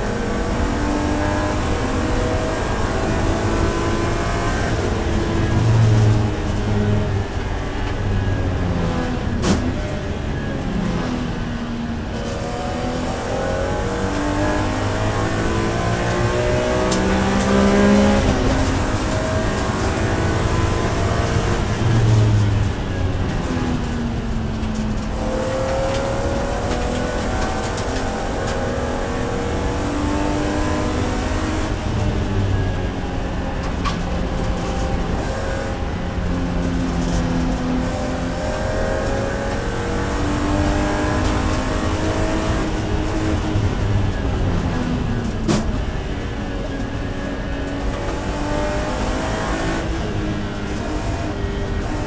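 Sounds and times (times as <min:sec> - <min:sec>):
racing car engine from inside cabin: 0:00.0 - 0:52.0.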